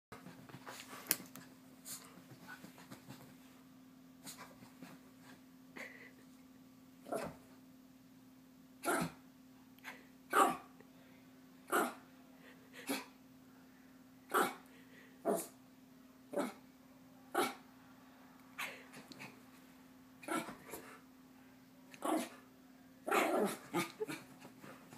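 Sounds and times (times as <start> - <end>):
small dog barking: 8.8 - 9.2, 10.3 - 10.7.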